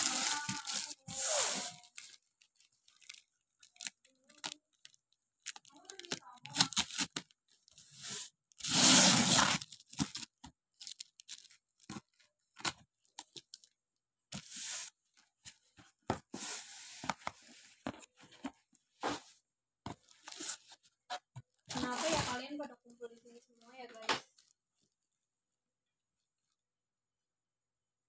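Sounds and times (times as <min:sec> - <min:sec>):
packing tape ripping off box: 0:00.0 - 0:02.1, 0:05.5 - 0:07.3, 0:07.9 - 0:11.5, 0:21.7 - 0:22.4.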